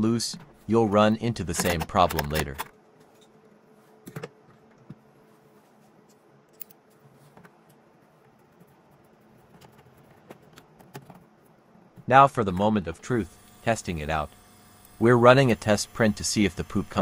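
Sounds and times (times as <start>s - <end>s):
faint steady hum: 0.0s - 17.0s
light clicks and scrapes of small parts: 5.7s - 11.5s.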